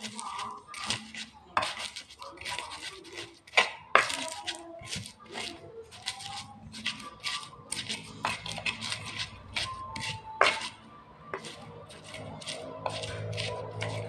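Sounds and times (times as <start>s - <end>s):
stone pestle pounding in mortar: 0.0s - 14.0s.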